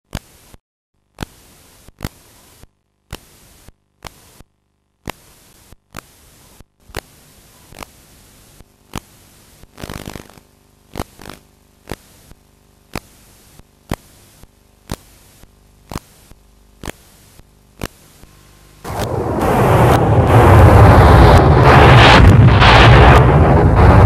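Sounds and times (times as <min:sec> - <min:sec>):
sharp clicks: 0:00.1 - 0:19.2
crackling: 0:00.1 - 0:24.0
tape hiss and static: 0:00.1 - 0:24.0.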